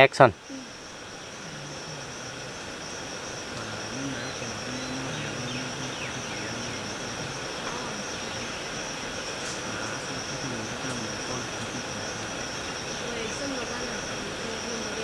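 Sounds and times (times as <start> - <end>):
quiet talking: 0.0 - 0.8, 1.4 - 15.0
insects droning: 0.0 - 15.0.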